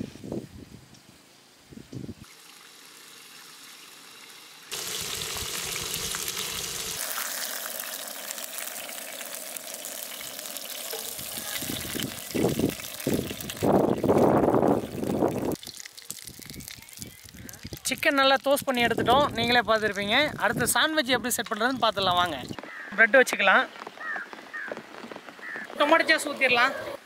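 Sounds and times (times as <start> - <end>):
chicken sizzling in oil: 2.2 - 20.8.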